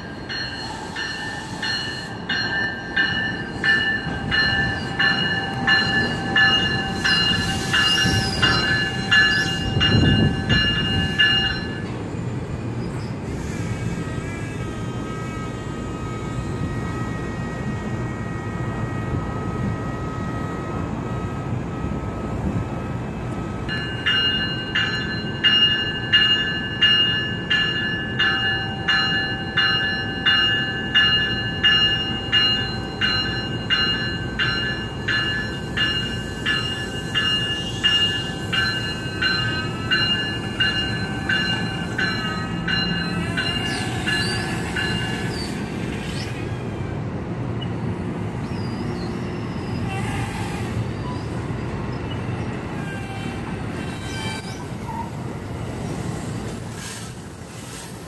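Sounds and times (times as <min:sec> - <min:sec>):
bell ringing: 0:00.0 - 0:11.8, 0:23.7 - 0:45.2
train cars rumbling past: 0:00.0 - 0:58.0
faint wheel squeal: 0:52.0 - 0:55.2.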